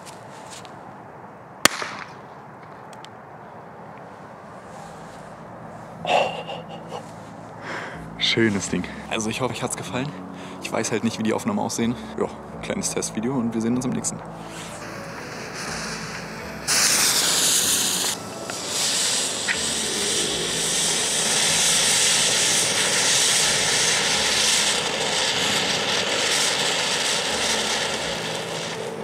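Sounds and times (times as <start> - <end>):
sharp pop: 1.6 - 2.2
firework fountain hissing: 14.3 - 29.0.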